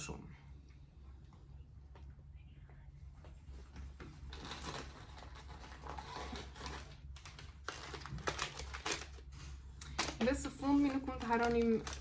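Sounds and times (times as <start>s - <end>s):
plastic bags rustling: 4.2s - 12.0s.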